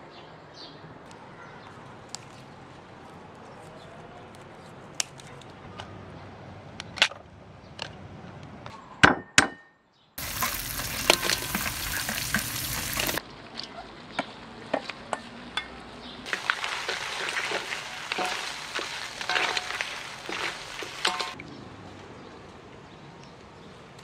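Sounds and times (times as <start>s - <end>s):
food sizzling in wok: 10.2s - 13.2s, 16.3s - 21.4s
stirring scrapes in wok: 10.2s - 13.2s, 16.3s - 21.4s
utensil clinking: 16.3s - 21.4s.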